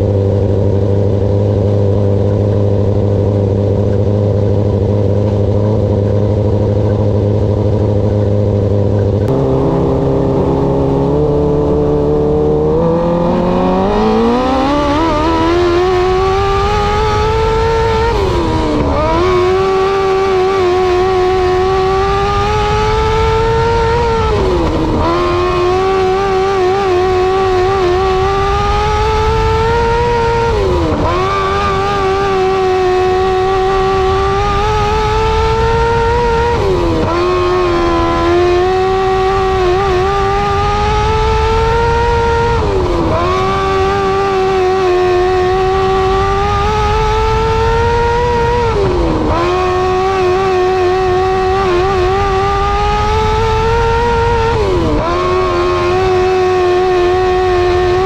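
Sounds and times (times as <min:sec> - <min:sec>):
racing engine at high revs: 0:00.0 - 0:58.0.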